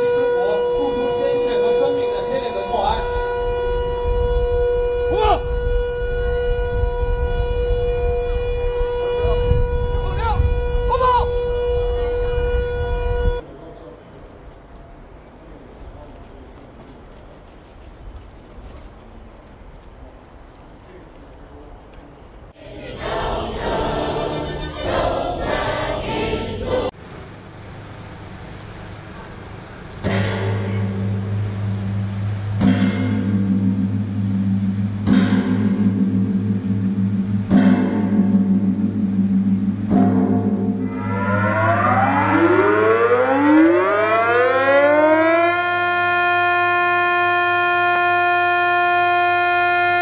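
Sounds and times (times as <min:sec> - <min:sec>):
air-raid siren steady tone: 0:00.0 - 0:13.4, 0:22.6 - 0:26.9, 0:30.0 - 0:50.0
group singing in unison: 0:22.6 - 0:27.0.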